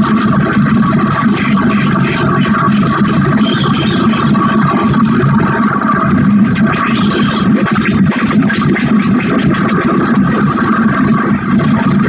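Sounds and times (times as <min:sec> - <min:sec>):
crackly flickers: 0:00.0 - 0:12.0
harsh electronic noise: 0:00.0 - 0:12.0
low synth drone: 0:00.0 - 0:12.0.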